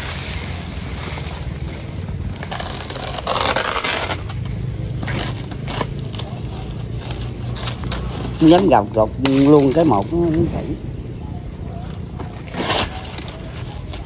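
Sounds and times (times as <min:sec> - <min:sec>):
knife scraping palm sheaths: 0:02.4 - 0:10.4.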